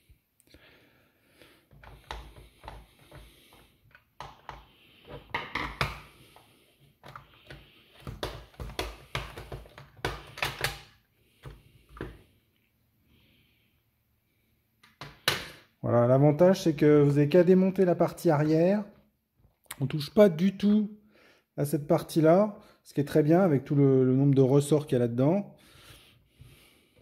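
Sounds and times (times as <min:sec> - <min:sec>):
plastic clicks and clacks: 0:07.0 - 0:12.2.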